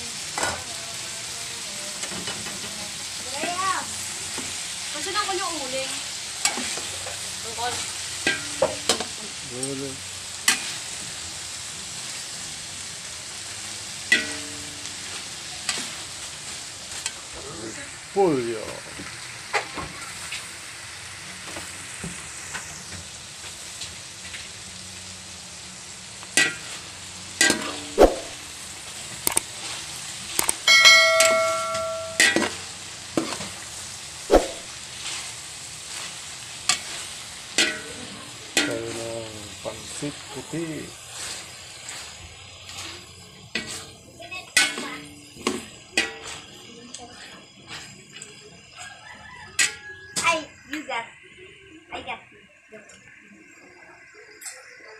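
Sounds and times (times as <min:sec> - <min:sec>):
vegetables sizzling in a wok: 0:00.0 - 0:54.9
metal spoon clanking on pan: 0:06.4 - 0:07.2, 0:08.2 - 0:09.2, 0:10.4 - 0:10.8, 0:14.1 - 0:14.9, 0:26.4 - 0:26.8, 0:27.4 - 0:28.4, 0:30.4 - 0:33.5, 0:37.5 - 0:38.9, 0:43.5 - 0:43.9, 0:44.5 - 0:46.4, 0:49.6 - 0:49.9
spatula knocking on metal wok: 0:30.7 - 0:32.6.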